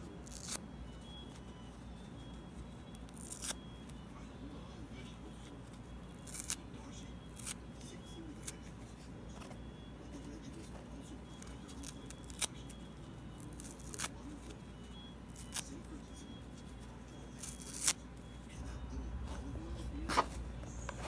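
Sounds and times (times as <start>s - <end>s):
steady low hum: 0.0s - 21.0s
foam sponge tearing: 6.1s - 6.6s, 17.4s - 18.0s.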